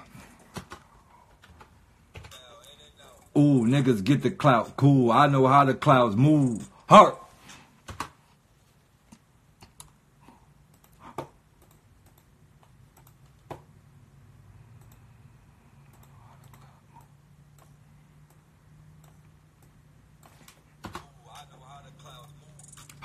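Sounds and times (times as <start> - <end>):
low steady hum: 0.0 - 23.0
faint clicks and taps: 9.0 - 13.7, 15.8 - 21.2.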